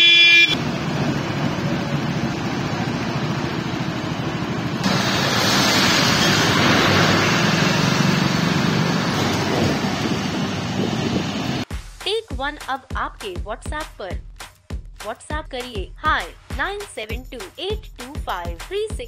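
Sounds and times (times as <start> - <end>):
vehicle engines: 0.0 - 11.7
tyres hissing on wet road: 4.8 - 11.6.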